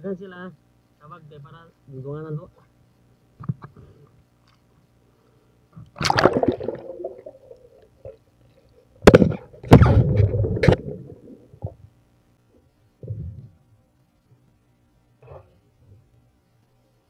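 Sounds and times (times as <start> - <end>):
water gurgling and sloshing: 6.0 - 8.2, 9.1 - 11.8.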